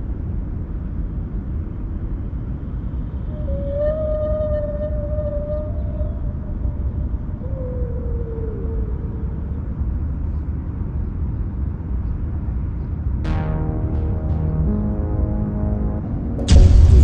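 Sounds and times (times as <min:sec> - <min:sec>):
faint falling tone: 0:13.2 - 0:17.0
background music: 0:13.3 - 0:17.0.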